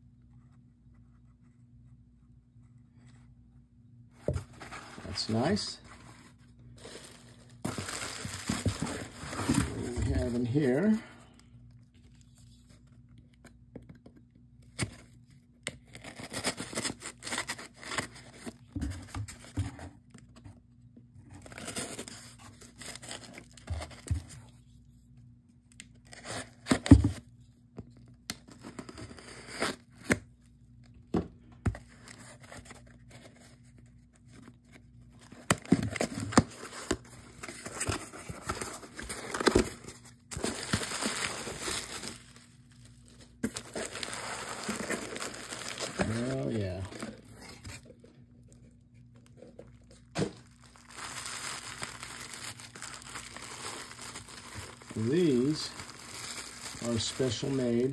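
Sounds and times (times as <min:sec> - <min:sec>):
packing tape tearing: 0:50.2 - 0:57.5.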